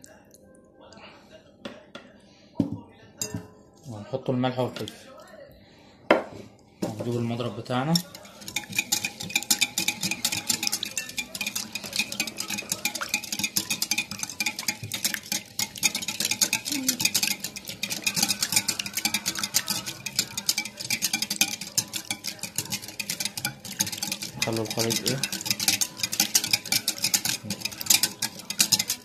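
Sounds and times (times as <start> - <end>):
whisk clicking against glass bowl: 7.1 - 29.0.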